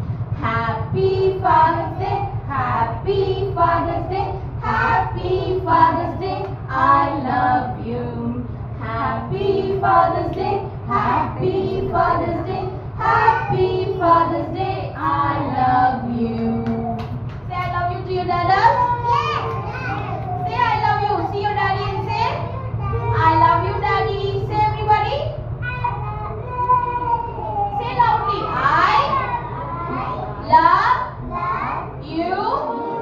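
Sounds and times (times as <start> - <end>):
steady low hum: 0.0 - 33.0
woman singing: 0.4 - 18.8
children singing: 1.0 - 17.1.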